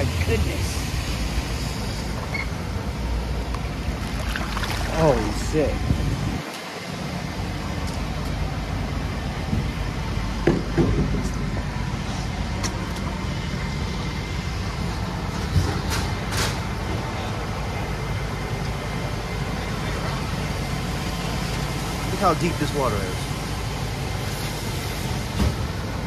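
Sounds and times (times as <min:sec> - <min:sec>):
vehicle engines idling: 0:00.0 - 0:26.0
hiss of wet street: 0:19.7 - 0:26.0.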